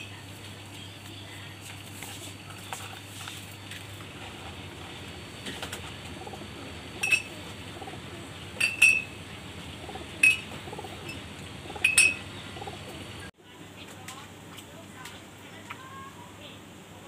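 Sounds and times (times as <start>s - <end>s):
pigeons cooing: 4.0s - 13.3s.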